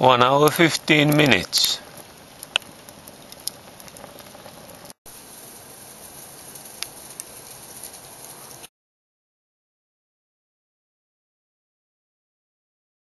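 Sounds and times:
fire crackles: 0.0 - 8.7
fire draft rushing: 0.0 - 8.7.

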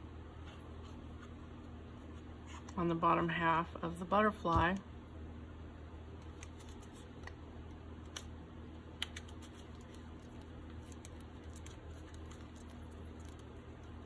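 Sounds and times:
low steady hum: 0.0 - 14.0
faint paper rustling: 9.2 - 14.0.

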